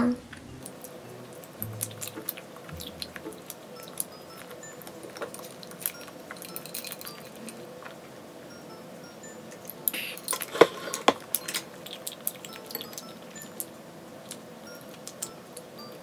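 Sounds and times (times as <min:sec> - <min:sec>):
soft background music: 0:00.0 - 0:16.0
metal straw clinking on glass: 0:05.1 - 0:07.6.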